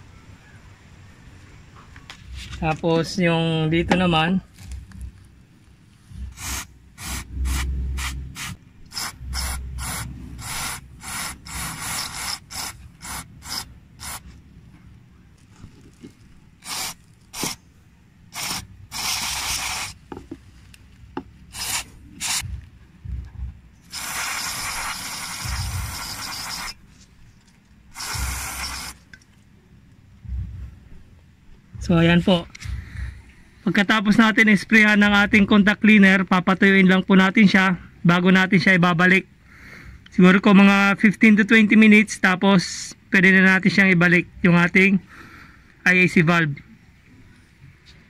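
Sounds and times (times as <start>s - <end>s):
aerosol can spraying: 6.2s - 14.3s, 16.6s - 17.6s, 18.3s - 20.3s, 21.5s - 22.5s, 23.8s - 26.9s, 27.9s - 29.1s.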